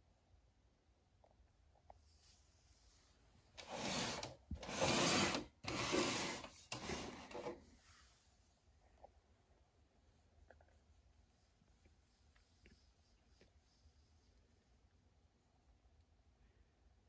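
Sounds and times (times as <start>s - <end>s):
amplifier case scraping on carpet: 3.6s - 7.6s.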